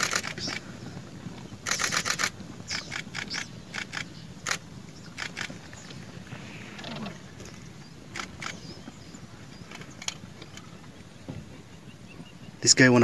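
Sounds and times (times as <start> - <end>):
camera shutter clicks: 0.0 - 0.6, 1.7 - 4.6.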